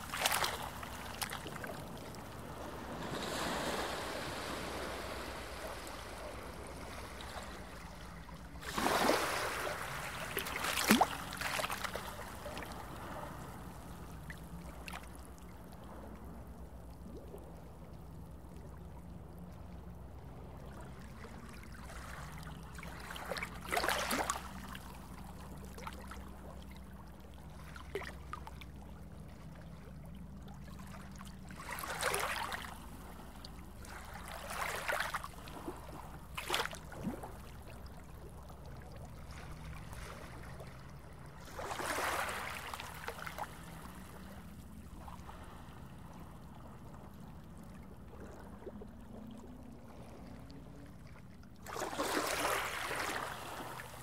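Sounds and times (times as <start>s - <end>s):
low underwater drone: 0.0s - 54.0s
water gurgling and trickling: 0.0s - 54.0s
water swishes: 0.0s - 54.0s.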